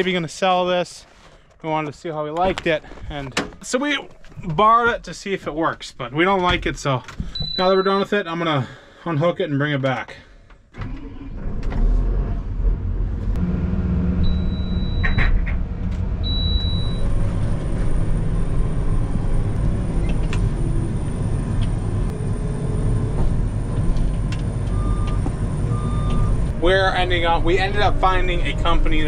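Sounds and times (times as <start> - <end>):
heavy diesel engine running: 12.6 - 29.0
short high beeps: 16.3 - 17.1.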